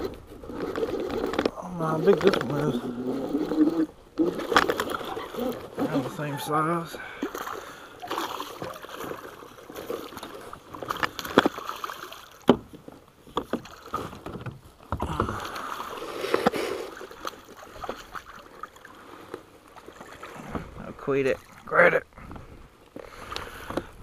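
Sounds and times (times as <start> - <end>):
fish splashing at water surface: 7.0 - 12.5
knocks against boat: 12.4 - 15.3.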